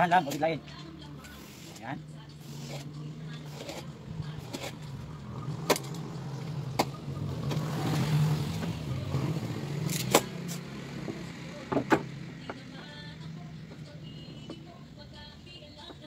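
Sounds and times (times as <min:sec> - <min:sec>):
vehicle engine running: 0:00.0 - 0:15.4.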